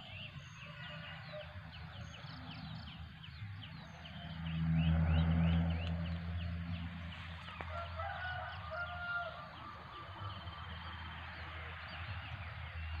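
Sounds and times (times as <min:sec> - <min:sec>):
small birds chirping: 0:00.0 - 0:13.0
rooster crowing: 0:07.6 - 0:10.3.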